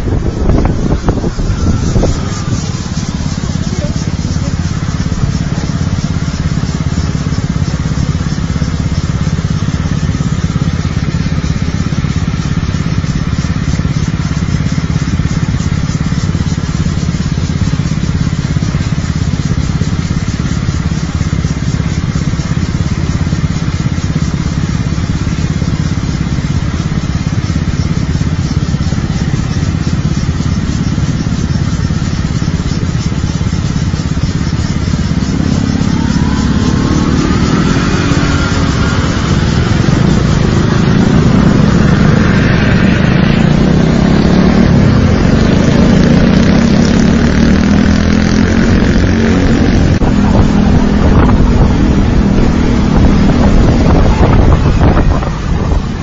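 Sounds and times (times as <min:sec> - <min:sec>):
motor scooter engine hum: 0:00.0 - 0:56.0
road noise: 0:00.0 - 0:56.0.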